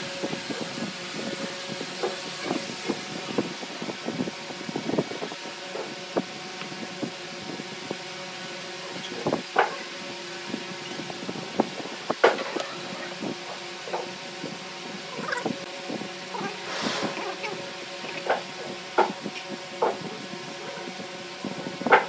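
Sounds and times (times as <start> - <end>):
steady background hum: 0.0 - 22.0.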